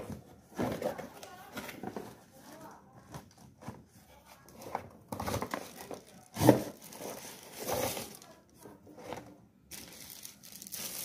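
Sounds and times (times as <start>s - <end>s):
cardboard box rustling and scraping: 3.6s - 8.2s.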